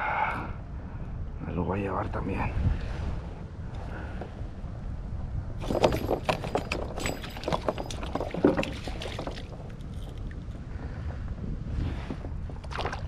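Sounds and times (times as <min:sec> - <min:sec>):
knocks and clatters: 0:05.6 - 0:10.2
water splashing around a net: 0:07.3 - 0:10.2, 0:12.6 - 0:13.0.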